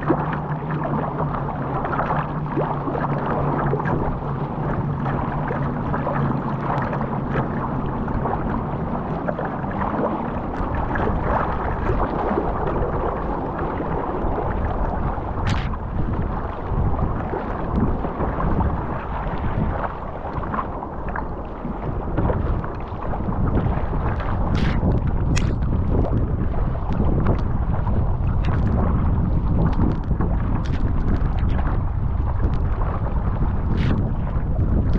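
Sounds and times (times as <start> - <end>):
water rushing along a hull: 0.0 - 34.9
wind on microphone: 0.0 - 34.9
sharp splash: 15.3 - 15.9, 23.8 - 25.8.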